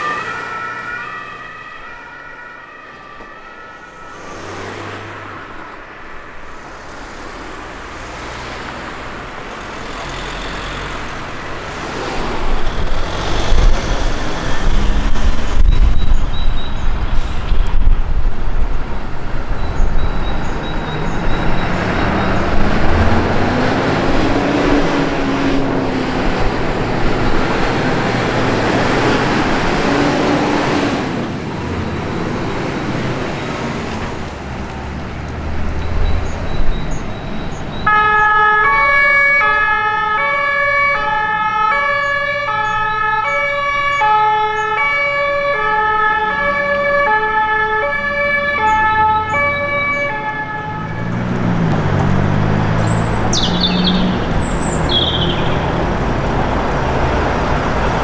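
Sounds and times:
two-tone emergency siren: 0.0s - 6.8s, 35.8s - 51.2s
road noise: 0.0s - 58.0s
vehicle engine: 0.0s - 58.0s.

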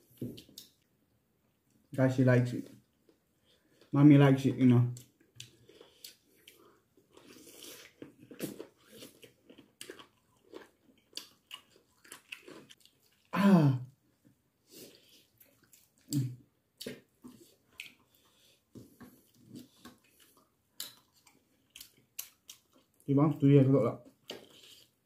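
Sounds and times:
chewing and lip-smacking: 5.0s - 13.3s, 14.8s - 23.1s, 24.0s - 25.0s.

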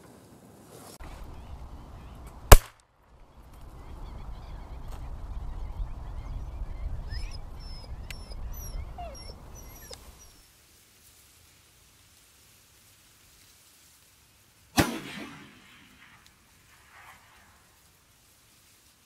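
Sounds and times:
shotgun shot: 2.5s - 2.8s, 14.8s - 16.2s.

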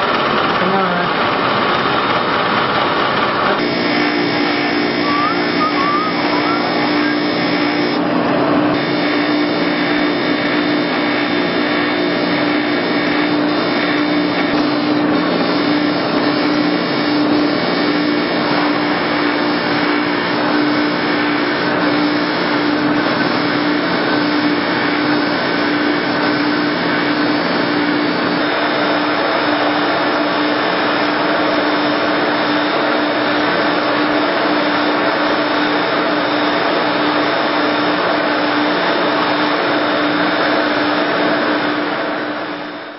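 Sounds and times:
bench grinder polishing metal: 8.8s - 28.6s.

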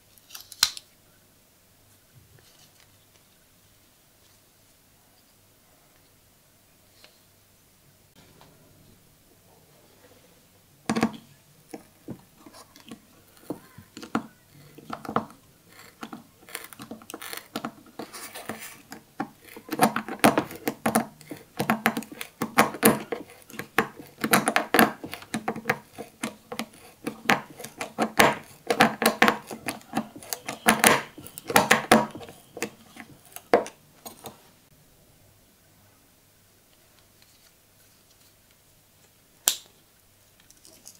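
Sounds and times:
screwdriver turning screw into wood: 12.8s - 34.3s.

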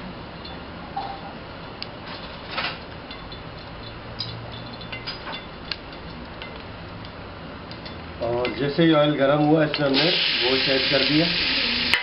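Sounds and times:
oil ticking and popping: 2.7s - 8.6s, 9.6s - 12.0s
oil hissing in a pot: 9.9s - 12.0s.

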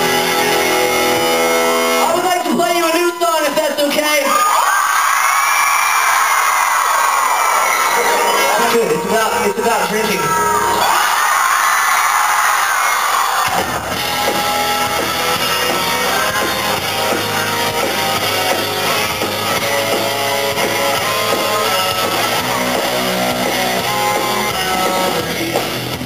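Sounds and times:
live rock band playing: 0.0s - 4.0s, 7.6s - 11.1s, 13.4s - 26.0s
crowd cheering: 0.0s - 26.0s.

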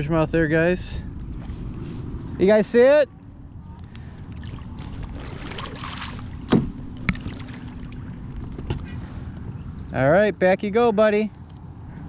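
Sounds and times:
water lapping against kayak hull: 3.9s - 8.9s
sharp knocks: 6.4s - 7.3s.

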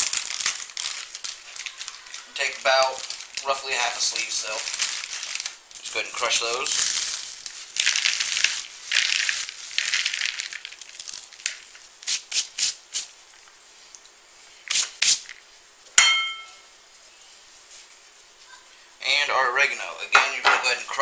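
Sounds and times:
crackers crunching in a hand: 0.0s - 12.3s.

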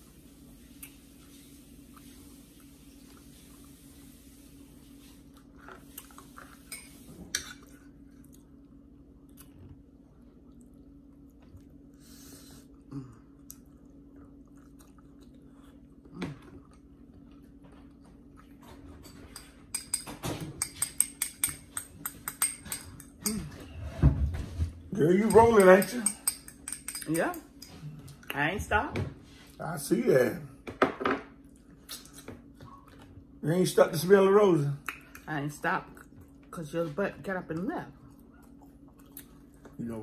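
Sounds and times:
person chewing: 5.3s - 6.7s, 12.6s - 18.6s, 31.5s - 33.2s, 38.1s - 39.8s
fork clinking on dishes: 25.2s - 27.8s.

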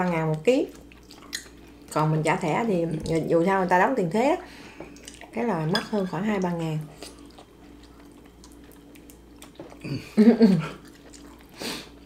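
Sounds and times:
chewing: 0.3s - 2.0s, 4.8s - 5.4s, 6.6s - 12.0s
person's voice: 1.9s - 4.4s.

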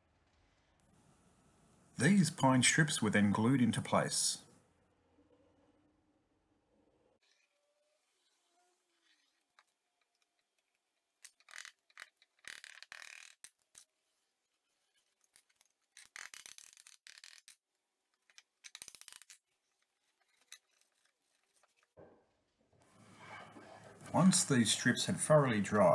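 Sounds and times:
scraping and rubbing on wood: 7.2s - 22.0s.

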